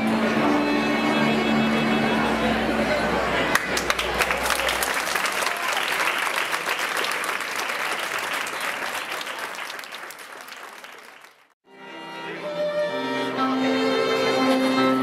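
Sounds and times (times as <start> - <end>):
violin: 0.0 - 3.5, 11.7 - 15.0
crowd applauding: 3.3 - 11.6
keyboard playing held notes: 11.7 - 15.0.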